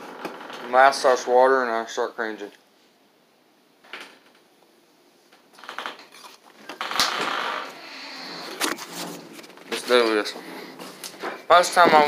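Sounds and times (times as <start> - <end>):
rustling: 5.3 - 12.0.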